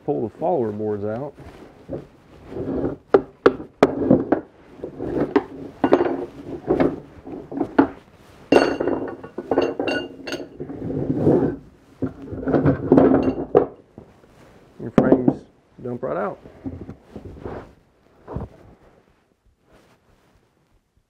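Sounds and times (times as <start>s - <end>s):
wooden knocks and scrapes: 1.3s - 15.5s, 16.4s - 19.1s
metal rods clinking: 5.6s - 7.0s, 8.5s - 10.7s, 12.6s - 13.9s.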